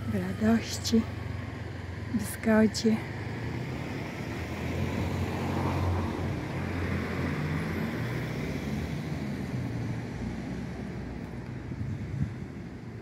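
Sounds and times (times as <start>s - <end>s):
low outdoor rumble: 0.0s - 3.6s.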